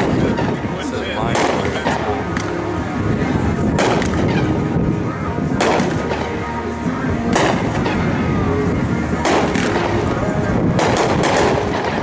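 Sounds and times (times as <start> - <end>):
firework bangs with echo: 0.0 - 2.6, 3.7 - 4.6, 5.6 - 6.5, 7.2 - 8.2, 9.2 - 12.0.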